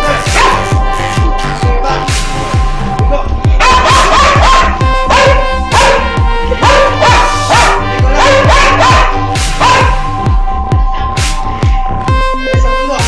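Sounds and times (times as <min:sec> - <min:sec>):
dog barking and howling: 0:00.0 - 0:00.8, 0:03.6 - 0:10.2
electronic music with bass beat: 0:00.0 - 0:13.0.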